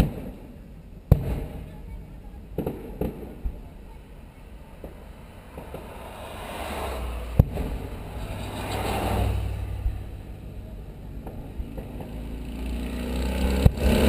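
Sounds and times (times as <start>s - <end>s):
car driving past: 4.9s - 14.0s
sharp bang: 7.2s - 9.6s.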